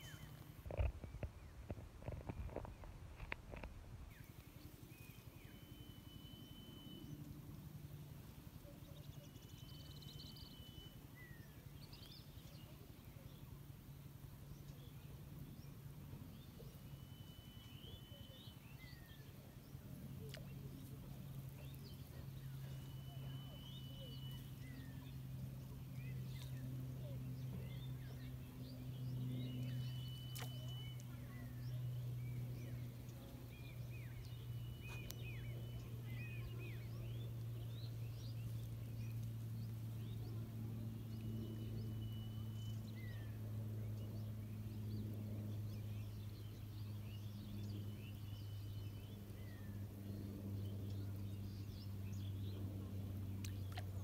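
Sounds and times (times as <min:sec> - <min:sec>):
birds chirping: 0:00.0 - 0:07.5, 0:14.6 - 0:54.0
faint low hum: 0:00.0 - 0:54.0.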